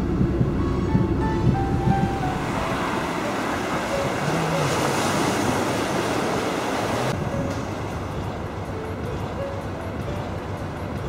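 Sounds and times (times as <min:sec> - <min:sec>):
wind buffeting microphone: 0:00.0 - 0:07.2
waves washing against rocks: 0:02.1 - 0:07.2.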